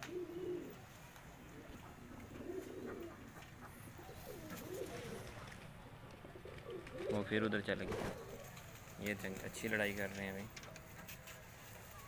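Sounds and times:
pigeons cooing: 0:00.0 - 0:05.6, 0:06.2 - 0:08.6.

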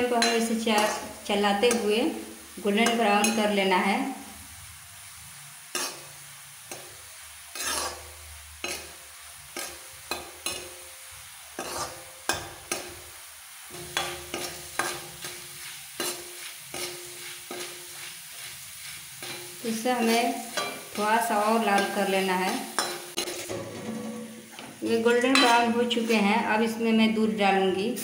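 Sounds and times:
faint frying sizzle: 0:00.0 - 0:28.0
spoon scraping a metal pan: 0:00.1 - 0:01.9, 0:02.8 - 0:03.6, 0:07.5 - 0:08.9, 0:11.6 - 0:13.0, 0:13.7 - 0:26.5.

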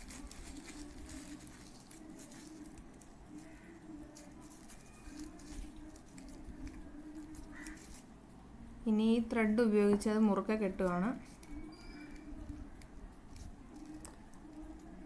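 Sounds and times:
tissue paper rustling: 0:00.0 - 0:08.1.

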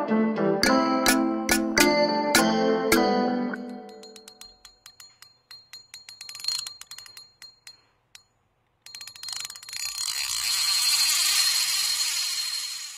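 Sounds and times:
fishing reel clicking: 0:04.0 - 0:08.2, 0:08.8 - 0:12.9
reel gears whirring: 0:04.8 - 0:12.9.

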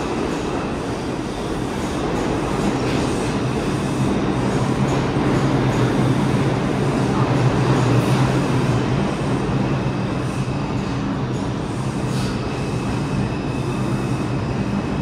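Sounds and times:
subway train rumbling on rails: 0:00.0 - 0:15.0.

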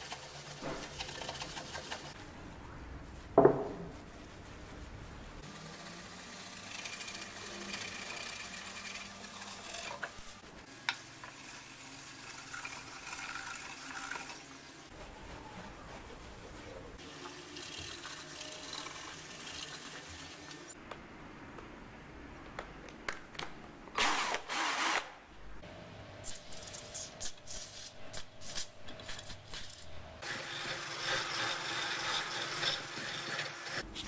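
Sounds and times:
cloth scrubbing wood: 0:14.9 - 0:17.4.

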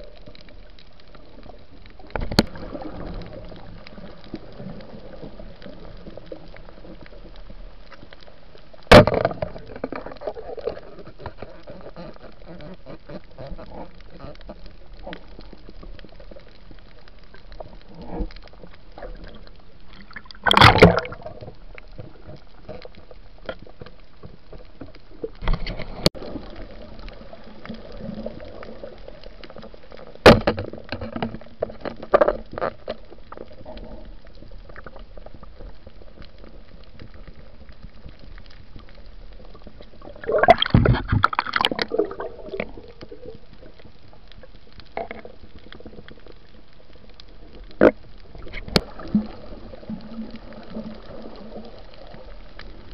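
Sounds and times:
underwater wash and gurgling: 0:00.0 - 0:52.9
loud bubbling bursts: 0:40.2 - 0:42.9.

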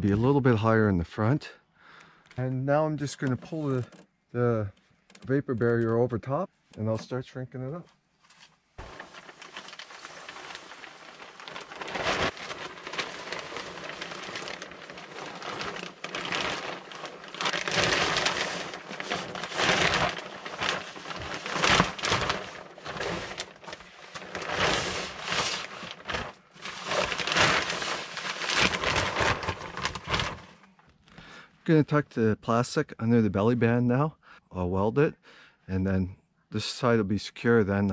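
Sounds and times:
plastic sheet crinkling: 0:08.3 - 0:30.8.

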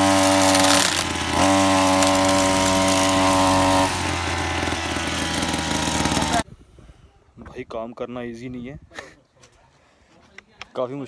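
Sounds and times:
lawn mower engine revving: 0:00.0 - 0:06.4.

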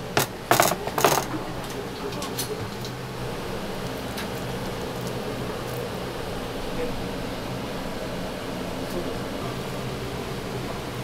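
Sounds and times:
kitchen ventilation hum: 0:00.0 - 0:11.0
kitchen handling noises: 0:00.1 - 0:02.9.

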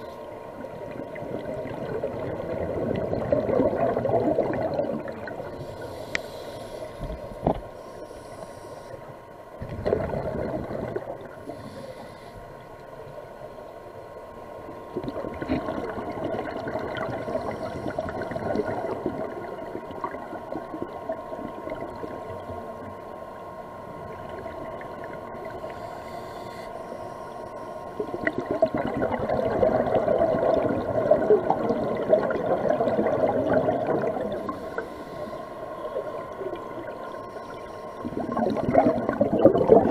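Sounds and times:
faint steady hum: 0:00.0 - 0:39.9
rushing exhaled bubbles: 0:00.9 - 0:05.8, 0:09.6 - 0:11.4, 0:14.9 - 0:22.1, 0:28.0 - 0:34.8, 0:38.0 - 0:39.9
diver breathing through regulator: 0:05.6 - 0:09.1, 0:11.4 - 0:12.6, 0:17.4 - 0:18.4, 0:25.7 - 0:27.9, 0:34.4 - 0:35.8.

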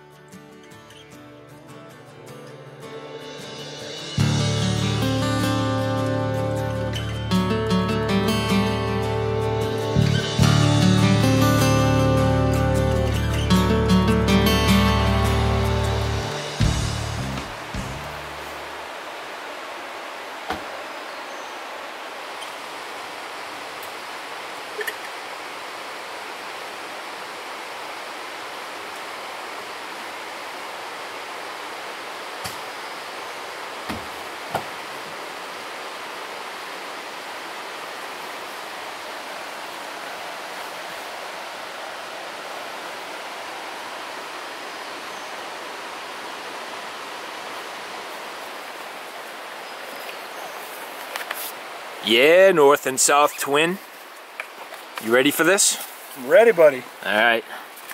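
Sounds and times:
flowing water rushing: 0:03.3 - 0:57.9.

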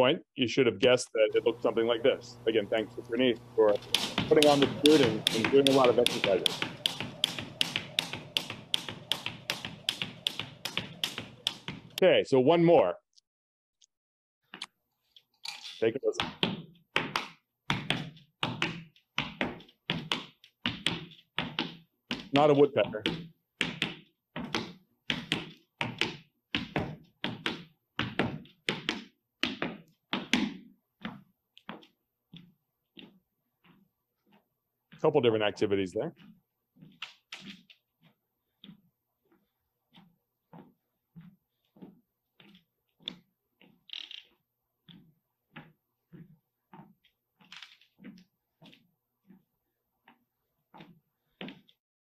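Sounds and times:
low steady hum: 0:01.2 - 0:12.0
dull knocks of footsteps: 0:03.6 - 0:12.0, 0:16.2 - 0:51.8
footfalls on floor: 0:03.6 - 0:12.0.

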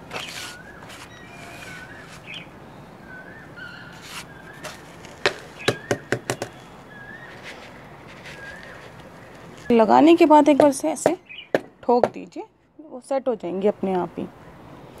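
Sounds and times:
small bird chirping: 0:00.1 - 0:10.1, 0:10.7 - 0:11.8
plastic pot knocking on stone: 0:05.2 - 0:06.6.

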